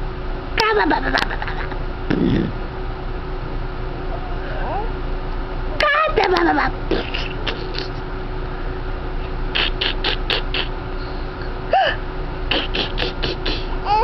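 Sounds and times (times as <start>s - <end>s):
steady low hum: 0.0s - 14.0s
baby cooing: 12.5s - 14.0s
baby gasping: 12.5s - 14.0s.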